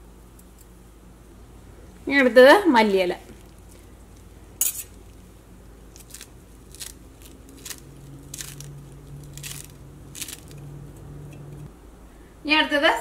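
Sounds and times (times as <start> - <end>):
knife snipping herbs: 6.0 - 11.7.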